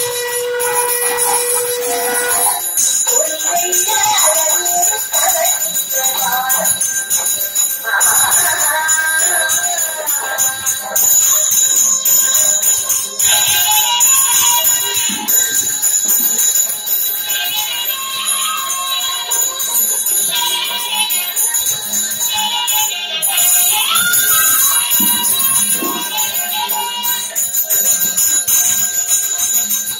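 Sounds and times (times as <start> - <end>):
music with wavering melody: 0.0 - 13.4
hand bell jangling: 0.0 - 29.9.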